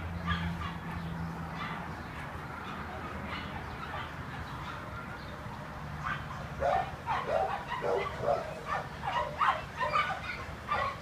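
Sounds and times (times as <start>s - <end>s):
dog barking: 0.3s - 0.9s, 1.6s - 1.8s, 3.3s - 4.9s, 6.0s - 11.0s.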